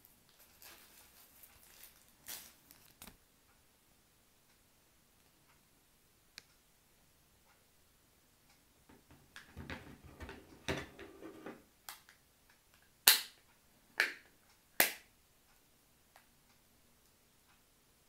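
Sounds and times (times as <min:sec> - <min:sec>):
plastic case scraping and knocking: 0:08.9 - 0:11.6.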